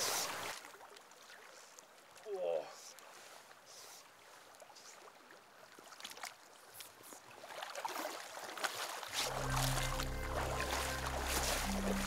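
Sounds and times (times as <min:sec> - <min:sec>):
flowing river: 0:00.0 - 0:12.0
fly line swishing: 0:09.1 - 0:12.0.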